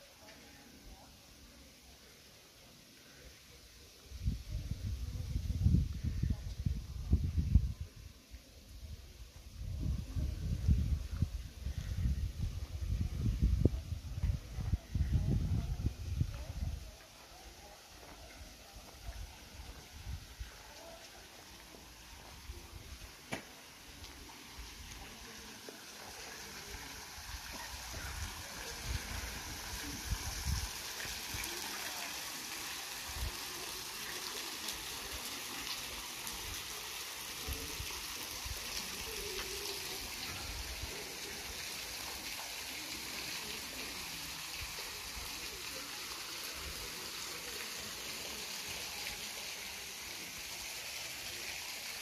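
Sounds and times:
wind buffeting microphone: 9.6 - 16.8
flowing water rushing: 16.2 - 52.0.

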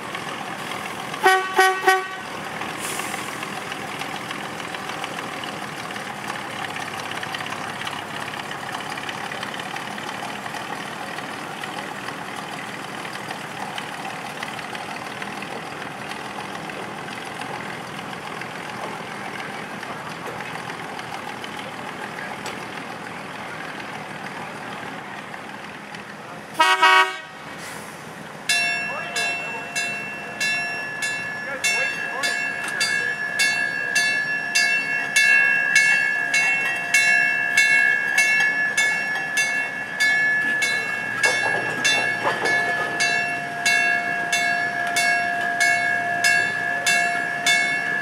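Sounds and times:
gasoline engine running: 0.0 - 26.8
horn toots: 1.2 - 2.2, 26.6 - 27.4.

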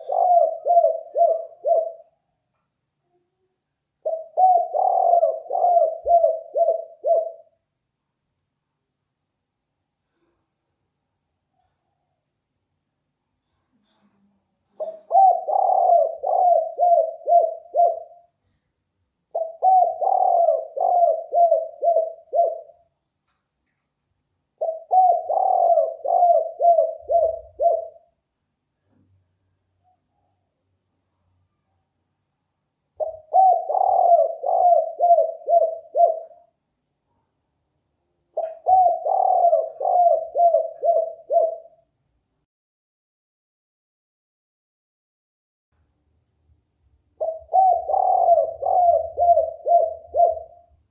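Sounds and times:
dove cooing: 0.0 - 2.2, 4.0 - 7.6, 14.8 - 18.3, 19.3 - 22.8, 24.6 - 28.1, 33.0 - 36.5, 38.4 - 41.8, 47.2 - 50.8.

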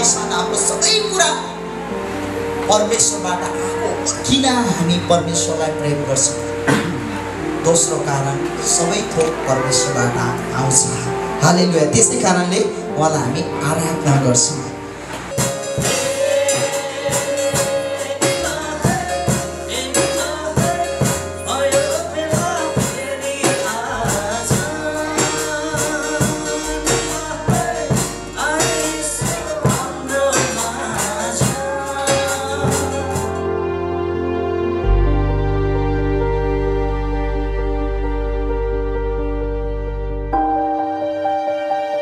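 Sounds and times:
steady percussive beat: 15.3 - 33.4
man singing: 15.8 - 33.6.

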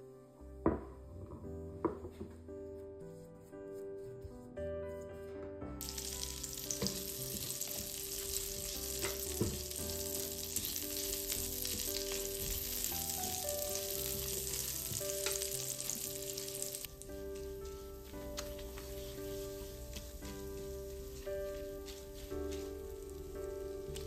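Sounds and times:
spatula stirring in pan: 5.8 - 16.9, 18.0 - 23.2
chorizo sizzling in hot oil: 5.8 - 24.0.

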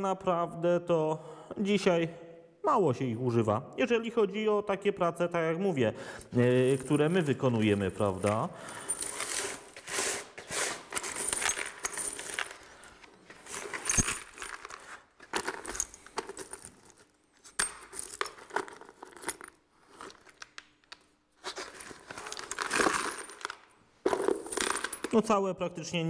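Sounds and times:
metal rivets jangling in bucket: 10.9 - 12.9, 13.5 - 20.3.

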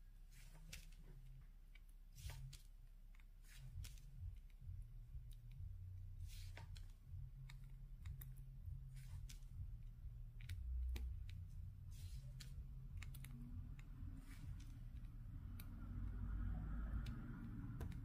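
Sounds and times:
steady low hum: 0.0 - 18.0
light clicks of tool tapping: 6.5 - 11.6, 12.2 - 18.0.

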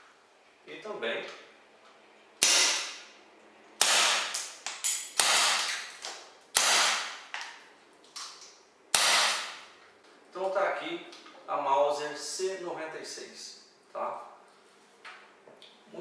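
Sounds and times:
airsoft pistol shots: 2.4 - 3.0, 3.8 - 4.5, 5.1 - 5.8, 6.6 - 7.2, 8.9 - 9.6.

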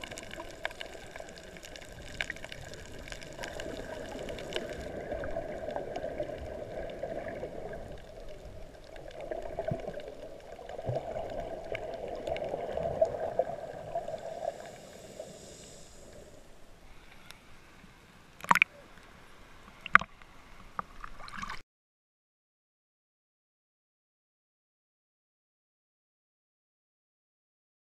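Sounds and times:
muffled underwater water rushing: 0.0 - 21.6.

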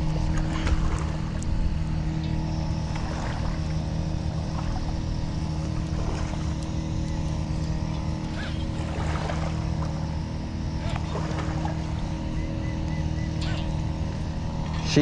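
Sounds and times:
low motor drone: 0.0 - 15.0.

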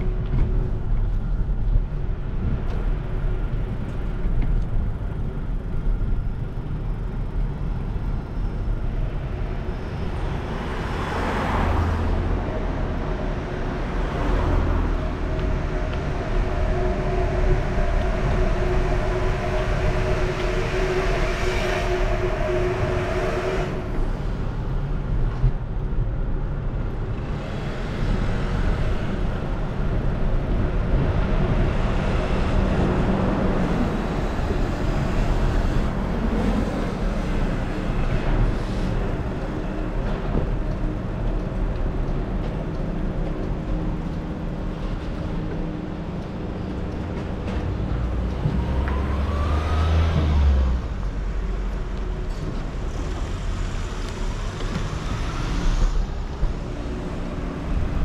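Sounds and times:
city traffic rumble: 0.0 - 58.0.

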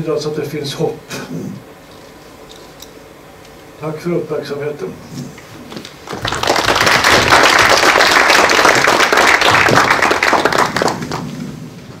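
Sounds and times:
audience applauding: 6.0 - 11.4.

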